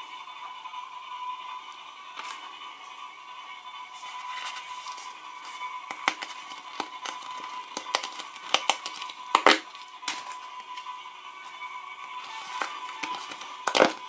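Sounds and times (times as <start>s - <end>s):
paper packet crinkling: 4.1s - 10.8s, 12.2s - 14.0s.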